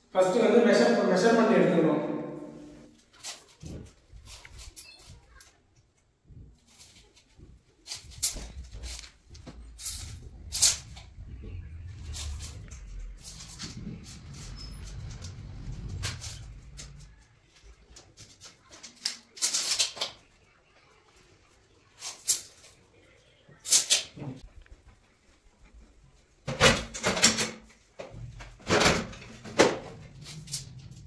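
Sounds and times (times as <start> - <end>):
stepladder scraping and knocking: 6.6 - 18.5, 26.5 - 31.0.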